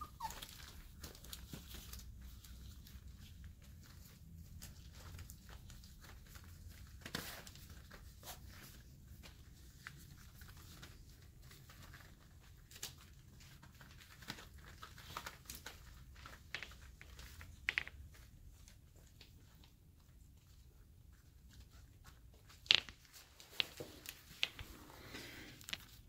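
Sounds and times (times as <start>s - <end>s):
rustling of fur and bedding: 0.0s - 26.0s
soft clicks and scuffs: 12.7s - 26.0s.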